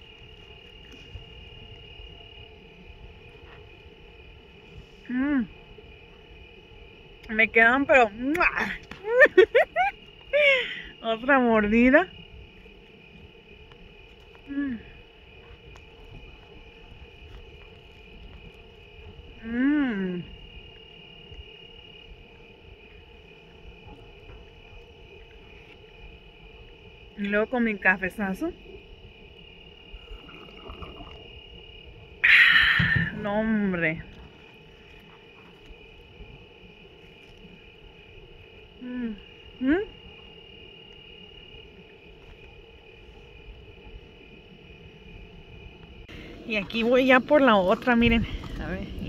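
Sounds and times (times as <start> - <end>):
crickets trilling: 0.0 - 49.0
woman humming: 5.1 - 5.6, 14.5 - 14.9, 19.4 - 20.4, 38.8 - 40.0.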